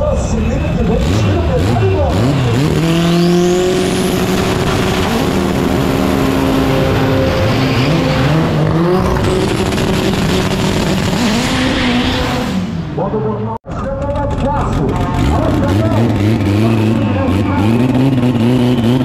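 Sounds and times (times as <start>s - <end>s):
race car engine revving: 0.0s - 19.0s
tyre squeal: 6.8s - 9.4s.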